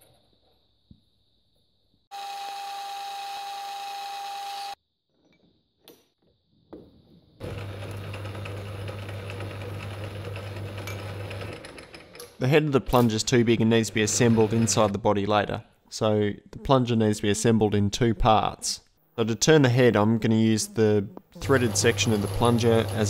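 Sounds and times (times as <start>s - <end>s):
metal lathe humming: 2.1s - 4.8s, 13.9s - 14.9s, 21.4s - 23.0s.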